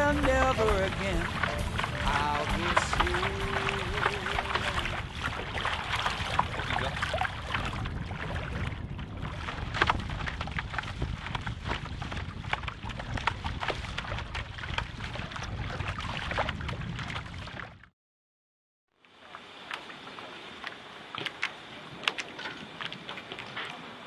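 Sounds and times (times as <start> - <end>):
water splashing against bows: 0.0 - 17.9, 19.0 - 24.0
wind buffeting microphone: 0.0 - 17.9.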